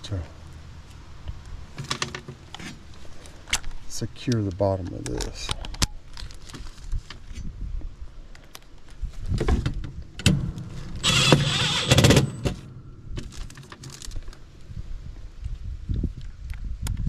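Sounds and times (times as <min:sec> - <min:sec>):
impact driver driving screws: 0:10.9 - 0:12.7.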